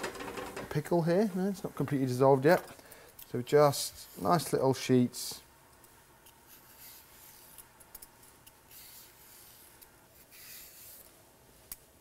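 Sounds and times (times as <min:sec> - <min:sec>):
vegetable peeler scraping: 0:08.5 - 0:11.1.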